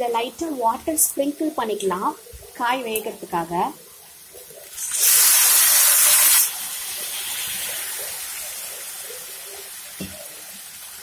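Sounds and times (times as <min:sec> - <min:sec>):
vegetables sizzling in oil: 0:00.1 - 0:11.0
loud hiss of steam: 0:04.8 - 0:06.5.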